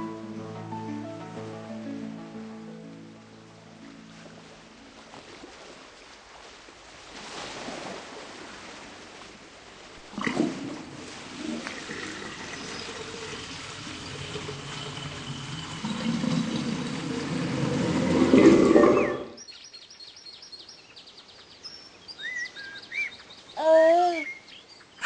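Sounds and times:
birdsong chirps and whistles: 0:12.5 - 0:23.6, 0:24.2 - 0:25.0
dense rushing noise: 0:13.6 - 0:19.4.

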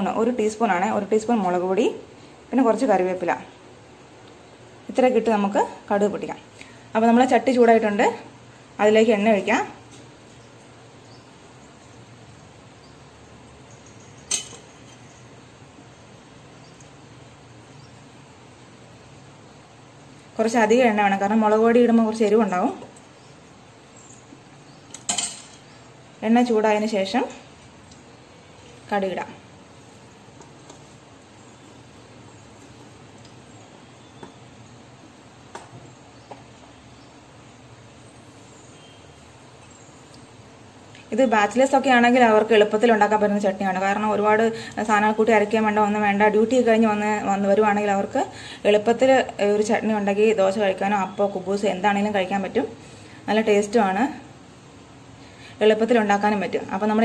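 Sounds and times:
ladle clinking on metal cookware: 0:14.2 - 0:15.1, 0:24.9 - 0:25.6.

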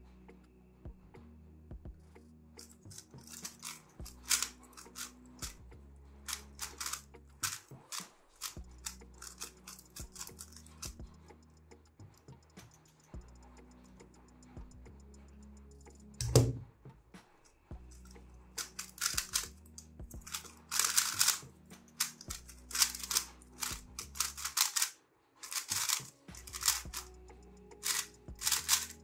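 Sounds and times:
background music: 0:00.0 - 0:29.0
plastic clicks of puzzle cube turning: 0:02.6 - 0:05.6, 0:06.3 - 0:11.0, 0:18.0 - 0:27.1, 0:27.8 - 0:29.0
thump: 0:16.2 - 0:16.7.

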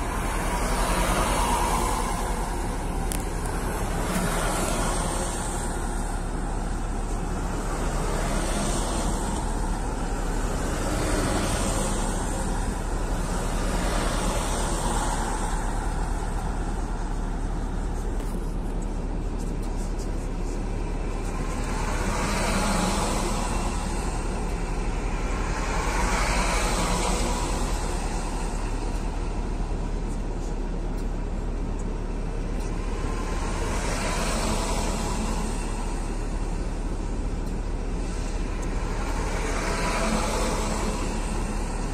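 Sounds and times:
truck engine rumble: 0:00.0 - 0:41.9
tyre hiss on wet road: 0:37.9 - 0:41.9.

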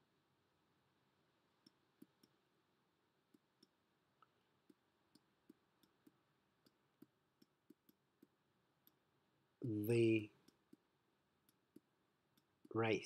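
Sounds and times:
stylus tapping on drawing tablet: 0:04.6 - 0:09.0.

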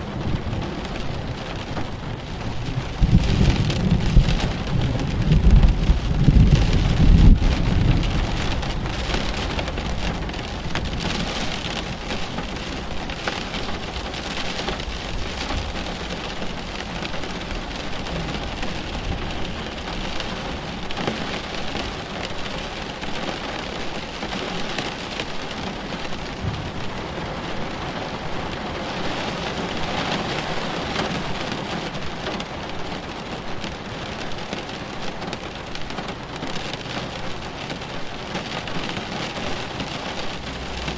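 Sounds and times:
low rumble of thunder: 0:00.0 - 0:20.2, 0:26.2 - 0:31.4
steady rain falling: 0:00.0 - 0:40.9.

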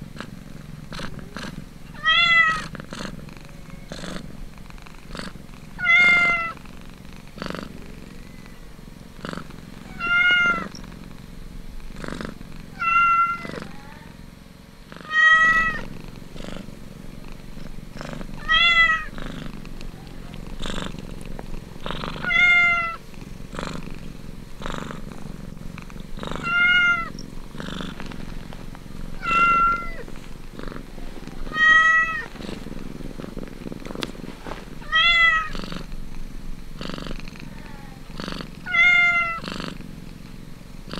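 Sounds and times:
cats purring: 0:00.0 - 0:40.9
cat mewing: 0:01.2 - 0:02.7, 0:05.8 - 0:06.6, 0:09.8 - 0:10.7, 0:12.8 - 0:14.2, 0:15.0 - 0:15.9, 0:18.4 - 0:19.2, 0:22.1 - 0:23.1, 0:26.3 - 0:27.2, 0:29.2 - 0:30.1, 0:31.3 - 0:32.3, 0:34.8 - 0:35.6, 0:38.6 - 0:39.5.

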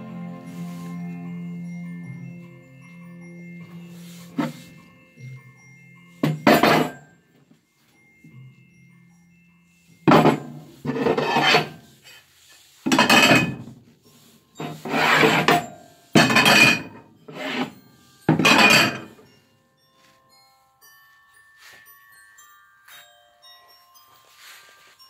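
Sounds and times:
gloved hands scraping plates: 0:10.1 - 0:11.8, 0:14.6 - 0:19.1.

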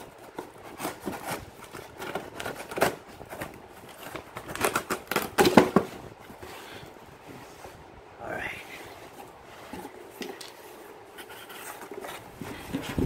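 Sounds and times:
knife slitting packing tape: 0:00.2 - 0:05.8.

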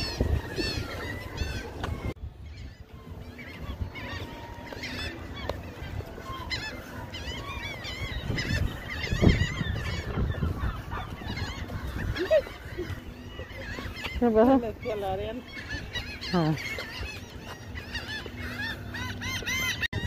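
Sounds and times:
wind rumble on microphone: 0:00.0 - 0:04.7, 0:05.6 - 0:16.5, 0:19.8 - 0:20.0
gulls calling: 0:00.0 - 0:20.0.

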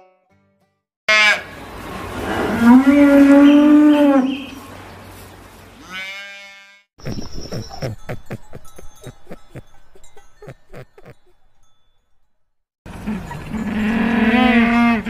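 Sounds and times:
cow mooing: 0:13.0 - 0:15.0.

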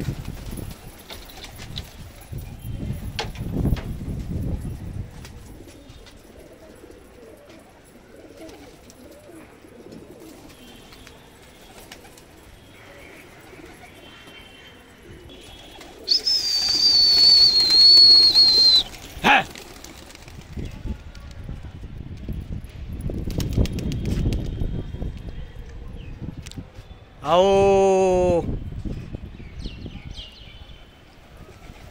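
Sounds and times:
pigeons cooing: 0:05.2 - 0:20.1.

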